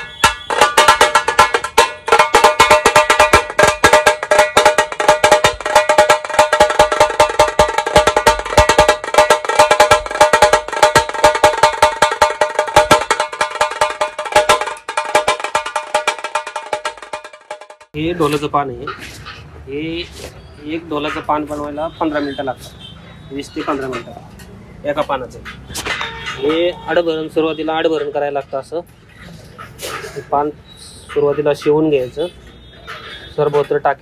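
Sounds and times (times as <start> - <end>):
drum struck rapidly with sticks: 0.0 - 18.0.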